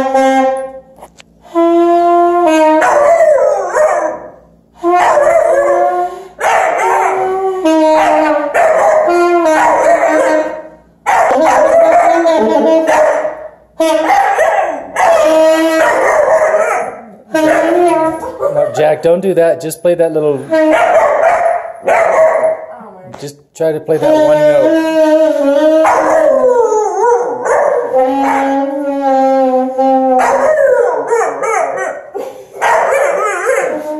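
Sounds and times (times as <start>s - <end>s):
saxophone holding a note: 0.0s - 2.8s, 7.2s - 9.8s, 24.0s - 25.9s, 27.9s - 30.5s
saxophone playing: 0.0s - 18.8s, 20.4s - 22.3s, 24.0s - 32.2s, 33.0s - 33.9s
dog howling: 2.6s - 18.8s, 20.5s - 22.7s, 24.6s - 33.9s.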